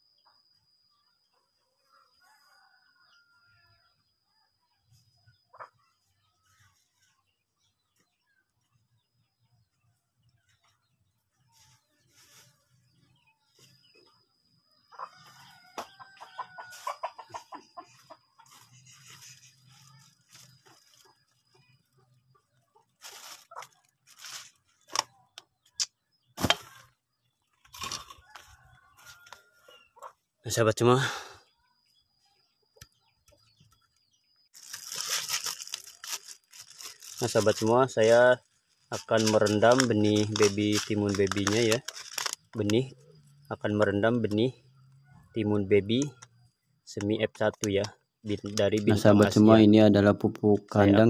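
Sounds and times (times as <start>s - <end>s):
plastic bag crinkling: 23.0s - 25.0s, 34.5s - 42.7s.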